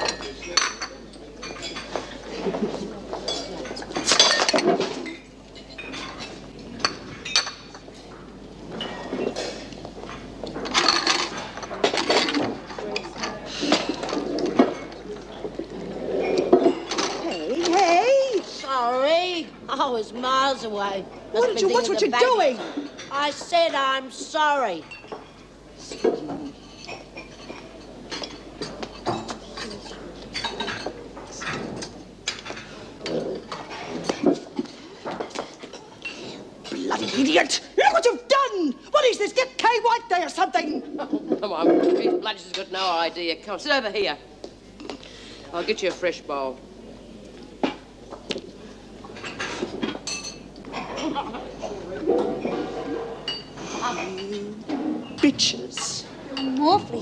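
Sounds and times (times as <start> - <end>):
crockery and cutlery clattering: 0.0 - 15.4, 16.0 - 18.4, 24.8 - 37.6, 49.1 - 57.0.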